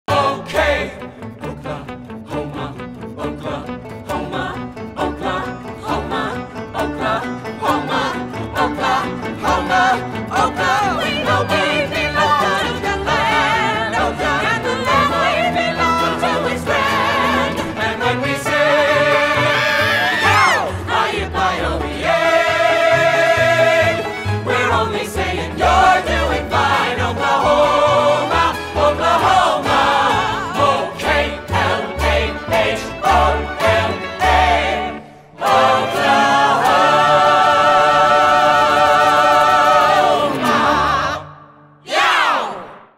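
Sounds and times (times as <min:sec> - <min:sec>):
voices singing with instruments: 0:00.1 - 0:42.9.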